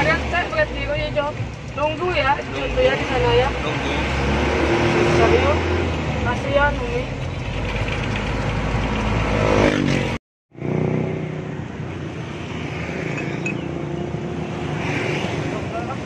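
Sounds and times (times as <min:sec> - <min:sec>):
truck engine running: 0:05.2 - 0:09.4.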